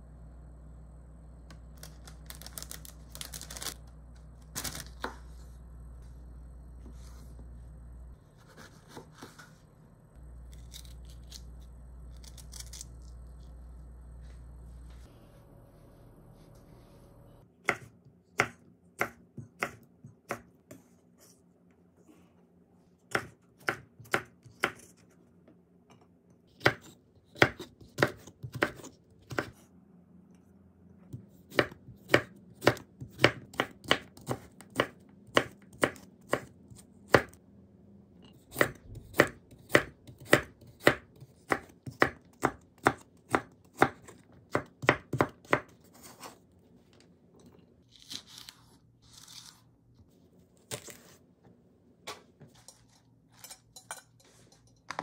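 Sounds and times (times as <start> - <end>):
knife chopping on wooden board: 38.5 - 46.2.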